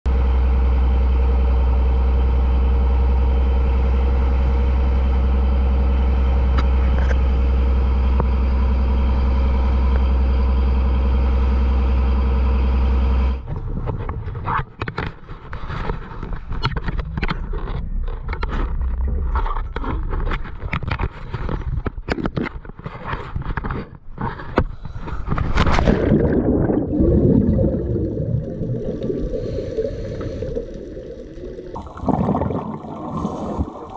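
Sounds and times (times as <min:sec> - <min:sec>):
boat engine droning: 0:00.1 - 0:13.9, 0:26.0 - 0:33.9
bubbling water rush: 0:25.4 - 0:33.9.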